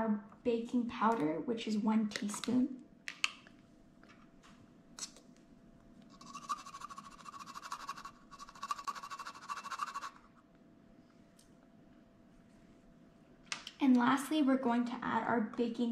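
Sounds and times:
spoon scraping in container: 0:06.1 - 0:10.2.

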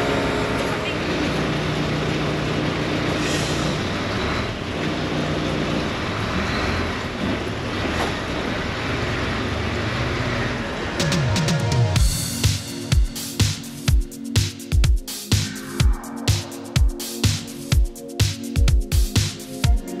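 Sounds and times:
diesel engine running: 0:00.0 - 0:12.9.

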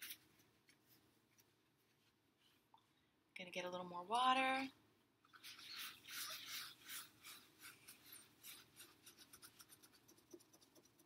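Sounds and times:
paper towel rubbing on glass: 0:05.4 - 0:09.8.

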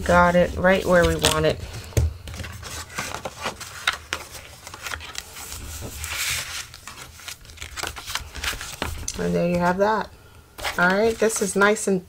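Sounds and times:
paper rustling: 0:00.0 - 0:09.8, 0:10.6 - 0:11.8
paper scuffing rub: 0:00.1 - 0:09.0.

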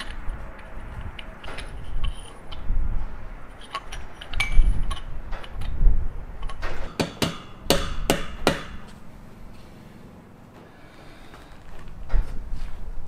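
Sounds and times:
sharp knocks: 0:06.6 - 0:08.9.

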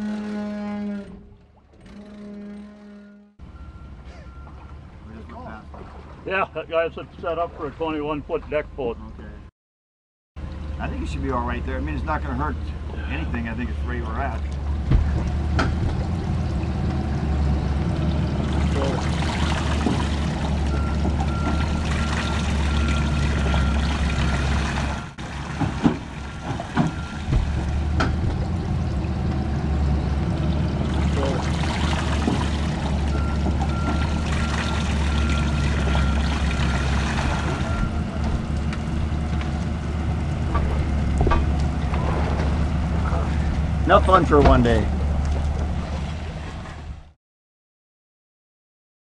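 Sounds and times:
water pouring off hull: 0:04.4 - 0:07.9, 0:10.4 - 0:47.1
low engine rumble: 0:10.4 - 0:47.2
knocks: 0:14.8 - 0:16.2, 0:25.5 - 0:28.7, 0:40.5 - 0:42.6.

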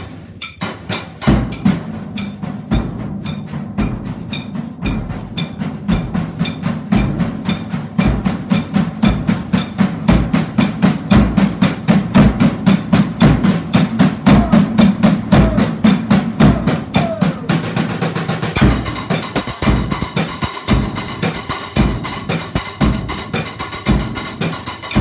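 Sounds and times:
drum kit playing: 0:00.0 - 0:25.0
bass drum thumps: 0:09.0 - 0:17.6, 0:18.6 - 0:23.2.

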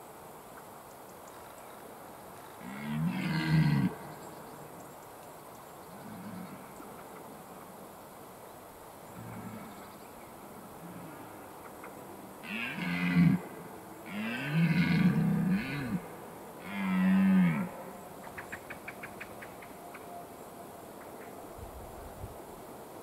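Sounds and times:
deer stag roaring: 0:02.6 - 0:04.0, 0:12.4 - 0:13.4, 0:14.0 - 0:17.7.

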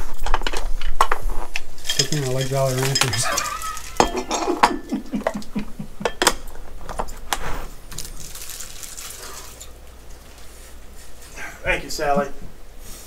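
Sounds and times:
candy wrappers rustling: 0:00.0 - 0:05.6, 0:06.5 - 0:11.4
candies clicking: 0:00.2 - 0:05.6.

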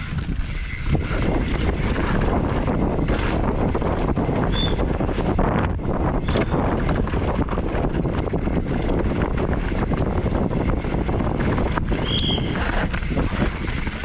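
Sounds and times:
bike chain and frame rattling: 0:00.0 - 0:14.0
wind buffeting microphone: 0:00.0 - 0:14.0
short high squeal: 0:12.0 - 0:12.6.

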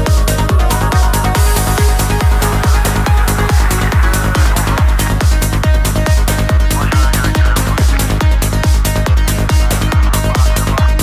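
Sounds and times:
held synth notes: 0:00.0 - 0:08.6
electronic trance music: 0:00.0 - 0:11.0
steady kick drum: 0:00.0 - 0:11.0.

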